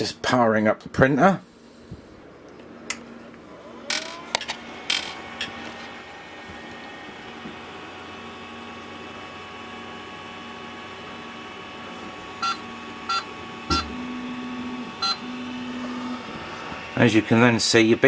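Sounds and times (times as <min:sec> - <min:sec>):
printer fans humming: 0:02.2 - 0:18.0
short electronic beeps: 0:12.4 - 0:13.9, 0:15.0 - 0:15.3.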